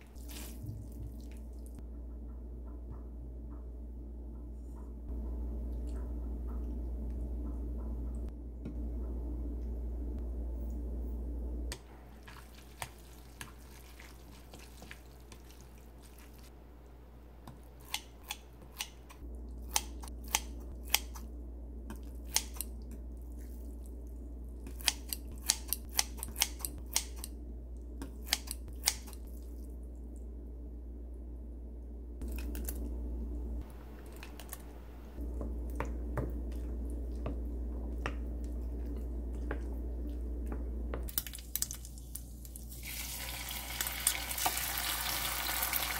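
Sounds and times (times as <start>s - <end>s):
scissors snipping noodles: 24.7s - 27.3s.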